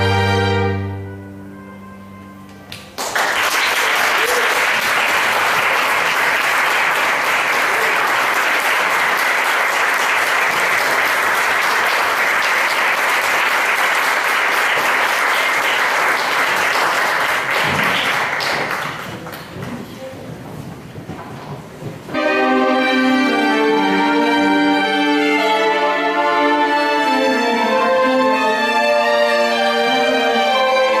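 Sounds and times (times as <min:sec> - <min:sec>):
audience applauding: 0:02.7 - 0:19.8.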